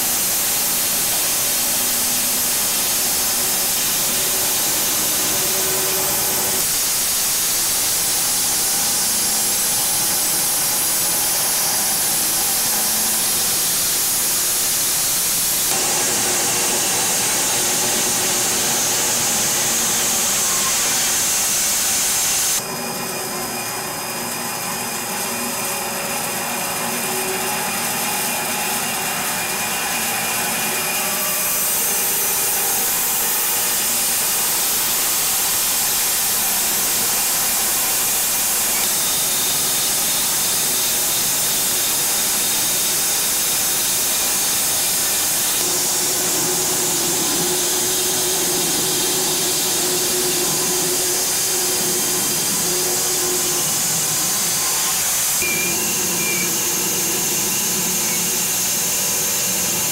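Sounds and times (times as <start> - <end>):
bandsaw blade cutting log: 0.0 - 22.6
motor drone: 0.0 - 59.9.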